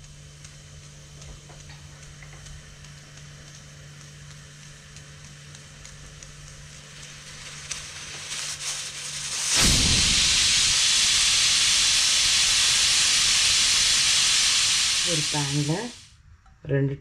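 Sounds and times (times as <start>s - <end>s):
pressure cooker steam hissing: 0.0s - 16.1s.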